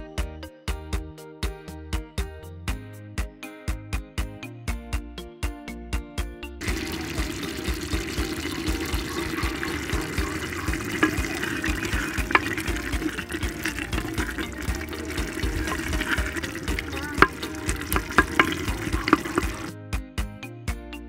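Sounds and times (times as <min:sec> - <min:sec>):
background music beat: 0:00.0 - 0:21.0
hissing watery noise: 0:06.6 - 0:19.7.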